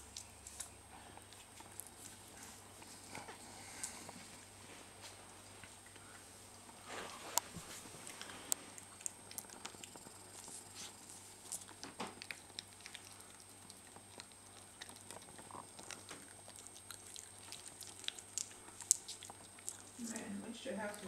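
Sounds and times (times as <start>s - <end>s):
puppy clicks and scratches: 7.3s - 20.3s.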